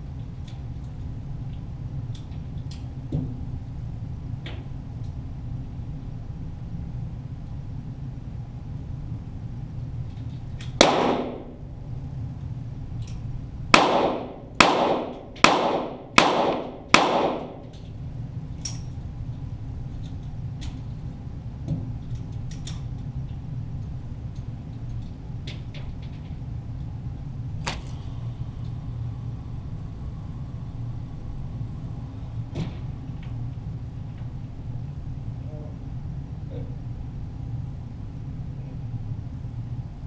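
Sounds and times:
pistol shots echoing indoors: 0:10.7 - 0:11.6, 0:13.7 - 0:17.8.

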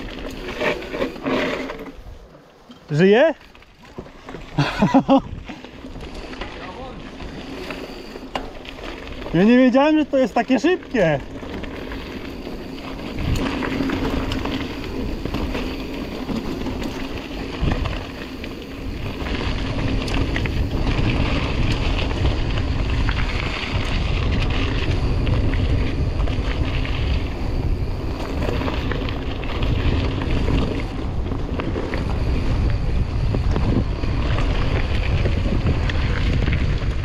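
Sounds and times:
bike clicks and knocks: 0:00.0 - 0:09.4, 0:11.3 - 0:27.1
bike tyre noise: 0:00.0 - 0:37.0
wind buffeting microphone: 0:04.5 - 0:09.8, 0:10.5 - 0:37.0.

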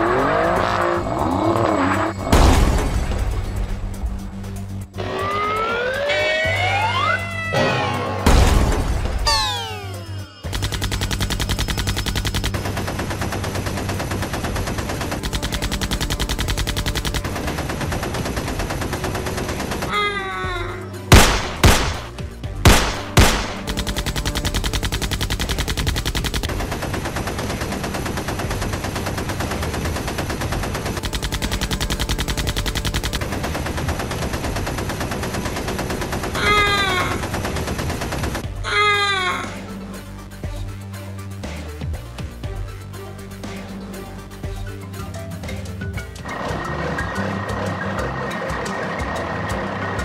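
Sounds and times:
loud bangs: 0:02.2 - 0:04.0, 0:07.8 - 0:11.3, 0:21.1 - 0:27.8
automatic gunfire: 0:10.5 - 0:19.9, 0:21.1 - 0:38.4.

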